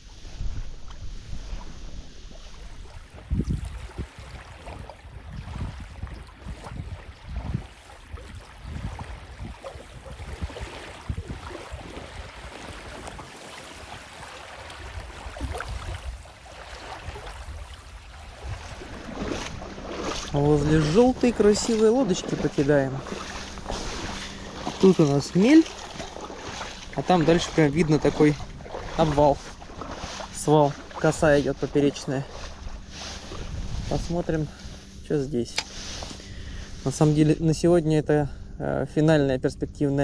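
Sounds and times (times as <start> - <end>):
rushing water: 0.0 - 37.4
wind: 0.0 - 40.0
footsteps: 18.4 - 37.2.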